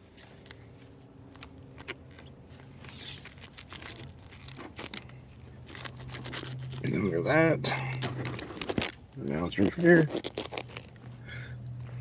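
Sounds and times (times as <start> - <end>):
knife crunching through bone: 7.9 - 11.1.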